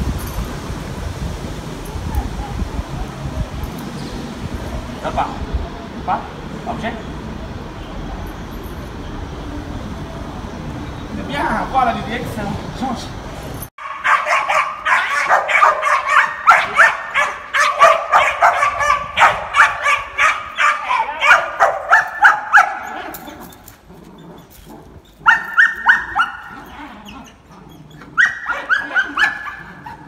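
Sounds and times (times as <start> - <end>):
puppy yipping: 13.8 - 23.6, 25.2 - 30.0.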